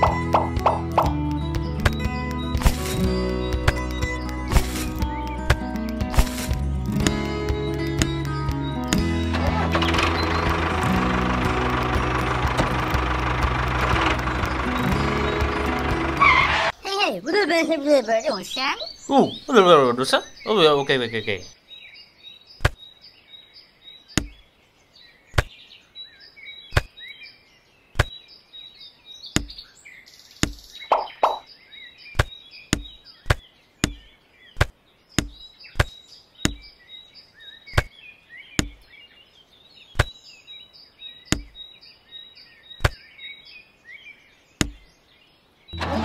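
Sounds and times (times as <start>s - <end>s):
faint bird chirps: 16.7s - 45.8s.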